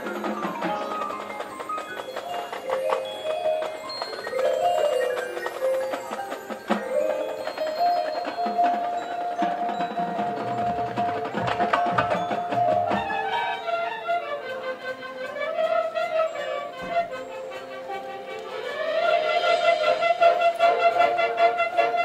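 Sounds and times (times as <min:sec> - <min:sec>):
mallet percussion notes: 0:00.0 - 0:22.0.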